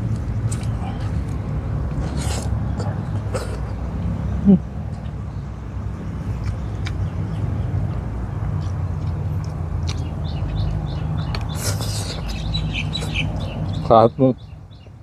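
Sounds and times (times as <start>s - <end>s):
person eating with fingers: 0.1s - 3.8s, 6.2s - 13.2s
birds chirping: 2.0s - 15.0s.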